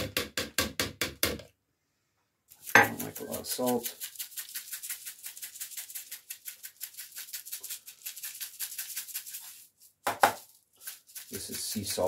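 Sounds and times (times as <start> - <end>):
salt rattling in container: 2.5 - 12.0.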